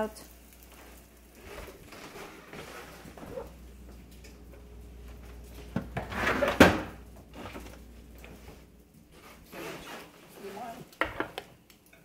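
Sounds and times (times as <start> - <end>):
rustling: 0.6 - 11.0
refrigerator door and shelf clunks: 5.7 - 7.6.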